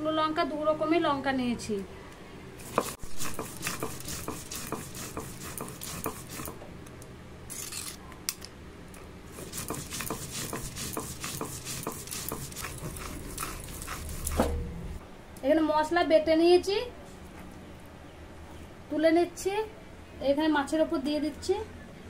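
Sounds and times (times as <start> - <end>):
stone roller scraping on stone slab: 2.6 - 6.6, 9.4 - 14.6.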